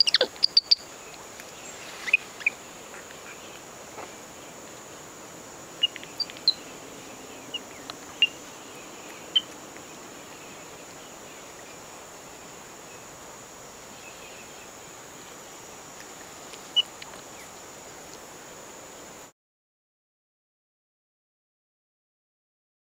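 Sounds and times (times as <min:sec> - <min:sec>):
high-pitched animal chirps: 0:00.0 - 0:00.8
steady high hiss: 0:00.0 - 0:19.3.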